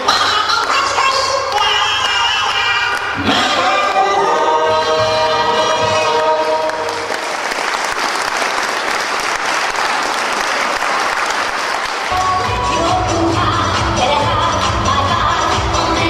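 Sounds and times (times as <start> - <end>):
music: 0.1 - 7.2, 12.1 - 16.0
group singing: 3.1 - 7.1
crowd applauding: 6.1 - 12.6.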